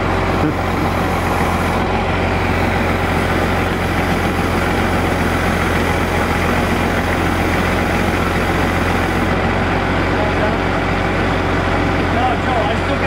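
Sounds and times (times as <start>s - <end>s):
truck engine idling: 0.0s - 13.0s.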